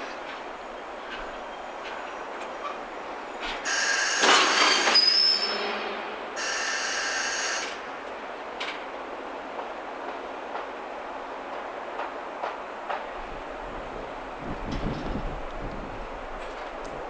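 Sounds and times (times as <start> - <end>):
train wheels rumbling: 0.0 - 17.0
high wheel squeal: 3.6 - 7.8.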